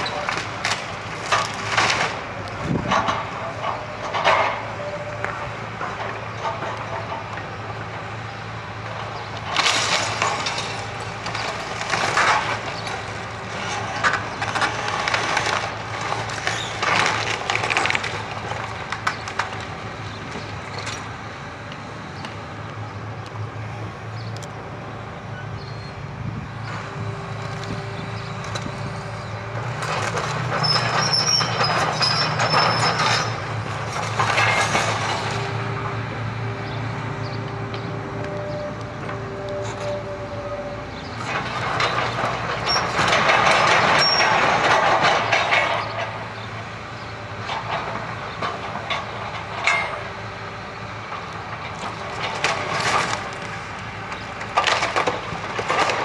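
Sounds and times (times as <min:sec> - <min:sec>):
excavator diesel engine running: 0:00.0 - 0:56.0
timber and rubble crashing: 0:09.4 - 0:19.6, 0:29.8 - 0:35.4, 0:41.2 - 0:46.2, 0:51.6 - 0:53.6, 0:54.4 - 0:56.0.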